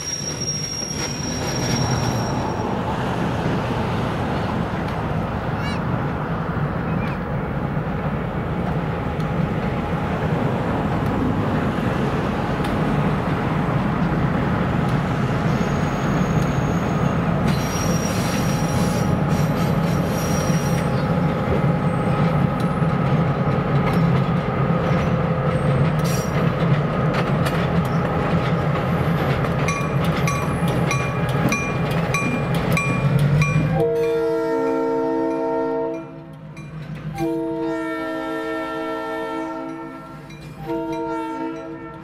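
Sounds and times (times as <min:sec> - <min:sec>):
high wheel squeal: 0:00.0 - 0:02.9, 0:15.4 - 0:21.1
wheels clicking over rail joints: 0:21.3 - 0:33.7.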